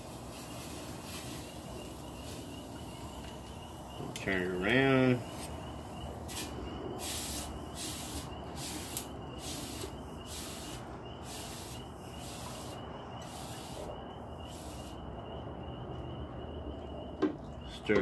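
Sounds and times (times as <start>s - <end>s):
hot steel sizzling in water: 6.3s - 15.0s.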